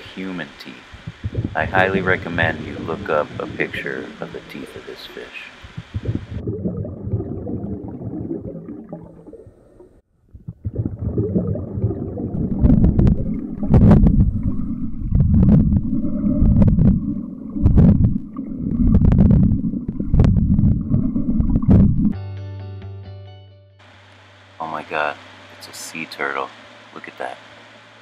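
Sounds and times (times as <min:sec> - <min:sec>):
underwater rumble of moving water: 0:00.0 - 0:22.2
sharp underwater clicks: 0:05.6 - 0:06.4.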